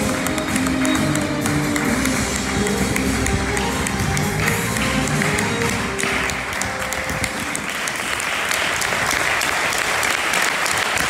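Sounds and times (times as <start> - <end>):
tango music: 0.0 - 8.3
audience applause: 0.0 - 11.0.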